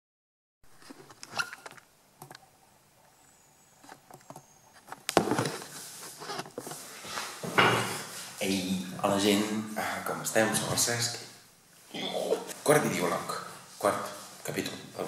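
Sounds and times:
rubbing and scraping near microphone: 4.8 - 8.7.

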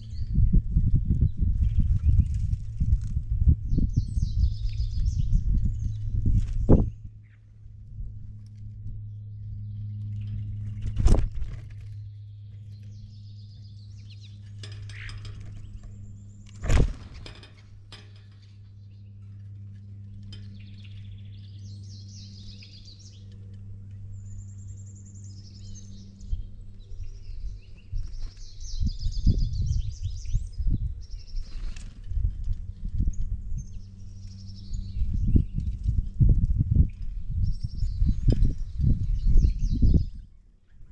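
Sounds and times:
low rumbling bumps: 0.0 - 21.3
songbirds chirping: 0.0 - 40.9
steady low hum: 0.0 - 40.9.

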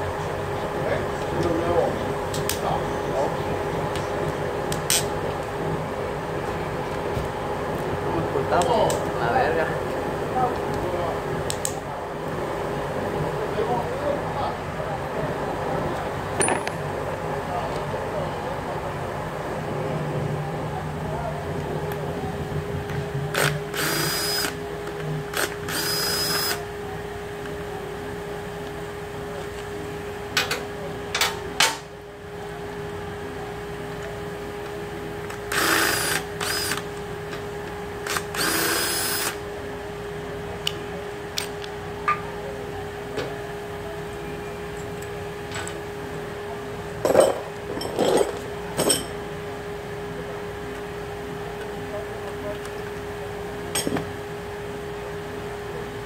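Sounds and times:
steady hum: 0.0 - 56.0
metal parts clanking: 16.4 - 16.8
cordless power tool running: 23.3 - 24.7, 25.3 - 26.7, 35.3 - 37.0, 38.0 - 39.4.

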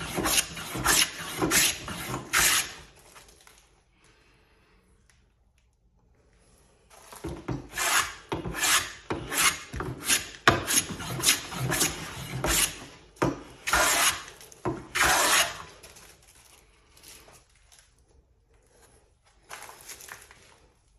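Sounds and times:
hand plane shaving wood: 0.0 - 2.9, 7.5 - 12.9, 13.6 - 15.8.

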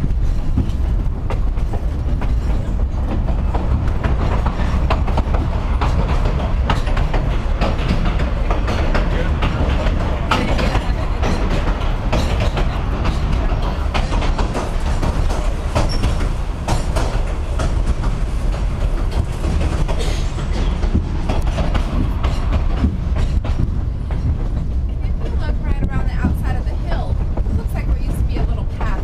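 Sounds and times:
rail joint clacks: 0.0 - 29.0
train wheels rumbling on track: 0.0 - 29.0.

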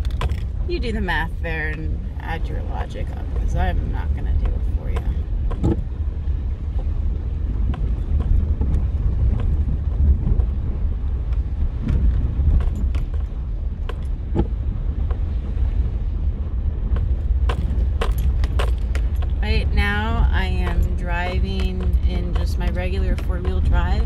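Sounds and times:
light clicks and rattles: 0.0 - 0.6
engine and tyres rumbling: 0.0 - 24.0.

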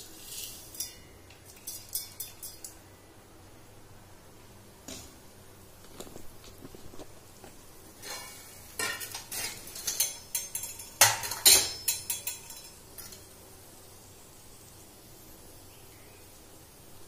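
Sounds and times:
metal spoon scraping iron pan: 8.0 - 13.3.

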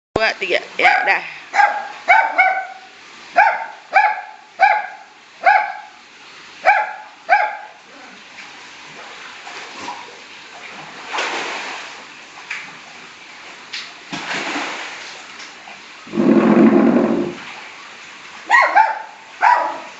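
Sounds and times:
small dog yapping: 0.9 - 5.9, 6.7 - 7.8, 18.5 - 19.9
short rush of noise: 16.1 - 17.4.

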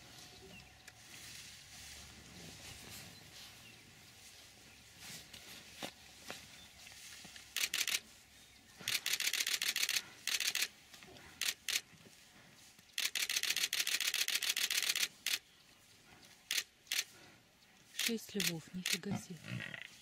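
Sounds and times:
camera shutter burst clicks: 7.5 - 8.0, 8.8 - 10.7, 11.4 - 11.8, 13.0 - 15.4, 16.5 - 17.1.

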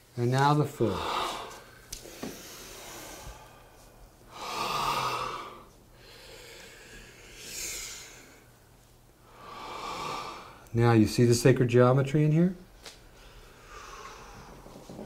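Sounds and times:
person breathing: 0.8 - 8.6, 9.2 - 10.7, 13.1 - 15.0.

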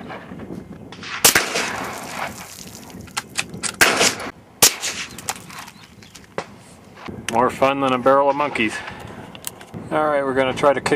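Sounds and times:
rifle shots: 1.0 - 2.5, 3.8 - 5.2.

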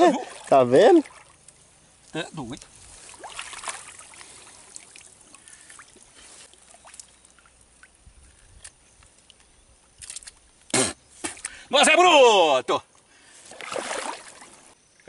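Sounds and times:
water splashes: 0.0 - 8.3, 13.4 - 14.8
water lapping and trickling: 0.0 - 11.6, 13.0 - 15.0
small ticks: 1.4 - 2.7, 6.8 - 10.8.

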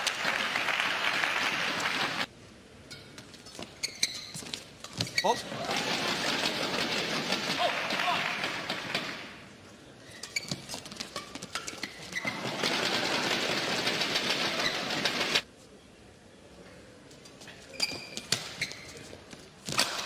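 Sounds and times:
court shoes squeaking: 2.9 - 7.6, 8.4 - 15.4, 17.1 - 20.0.

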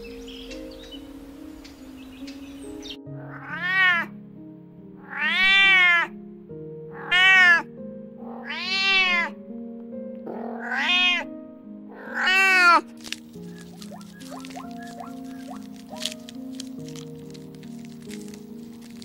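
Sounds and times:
cat meowing: 3.2 - 4.1, 5.0 - 6.1, 7.0 - 7.7, 8.3 - 9.4, 10.3 - 11.3, 12.0 - 12.9.

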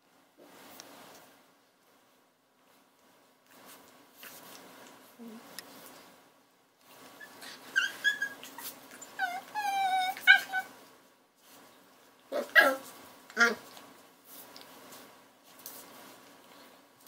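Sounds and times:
puppies whining: 7.0 - 10.7
puppies yipping: 7.1 - 10.7.

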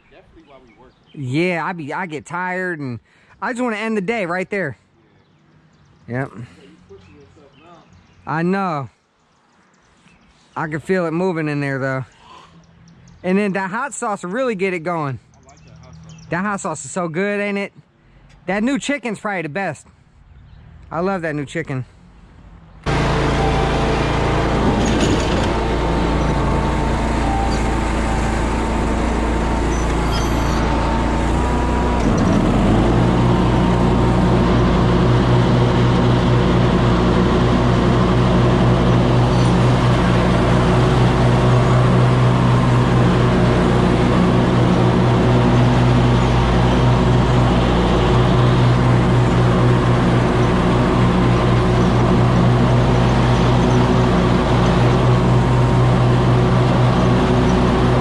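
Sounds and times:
mower engine running: 22.9 - 58.0.

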